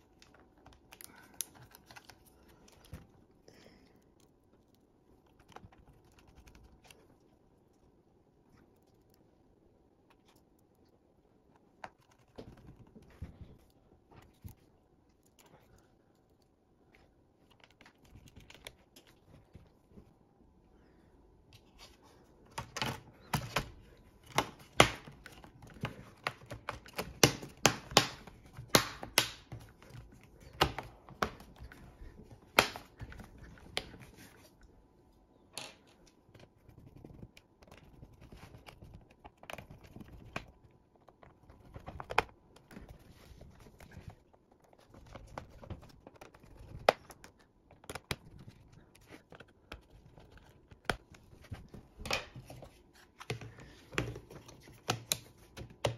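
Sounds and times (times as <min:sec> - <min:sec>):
plastic laptop cover clicking: 0:24.3 - 0:29.8.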